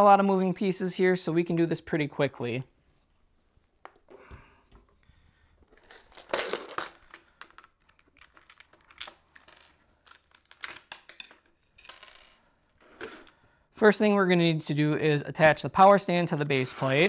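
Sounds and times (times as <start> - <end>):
plastic packaging crinkling: 5.6 - 11.4.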